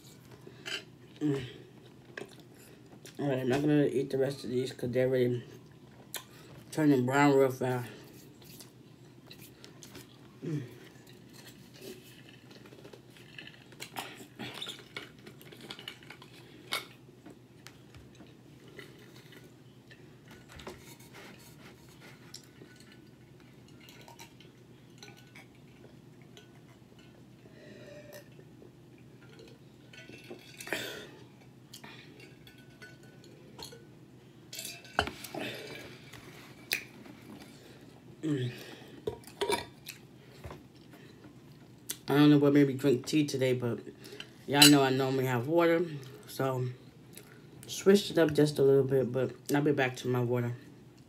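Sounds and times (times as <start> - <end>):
low background hum: 0.0 - 51.0
chewing: 1.8 - 3.2, 8.2 - 17.0.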